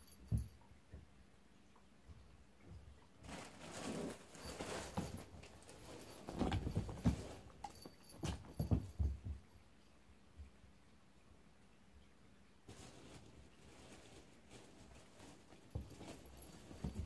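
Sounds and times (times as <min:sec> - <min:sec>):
fabric rustling: 0:03.2 - 0:08.2, 0:12.7 - 0:17.0.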